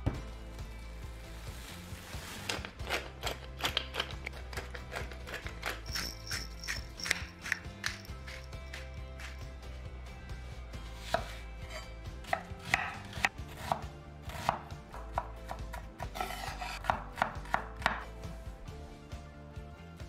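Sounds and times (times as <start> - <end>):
knife chopping on wooden board: 11.0 - 18.1.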